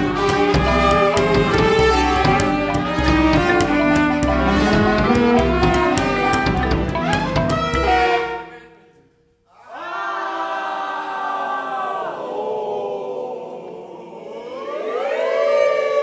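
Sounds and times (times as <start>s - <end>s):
ensemble music: 0.0s - 8.6s
many-voiced choir singing vowels: 7.8s - 16.0s.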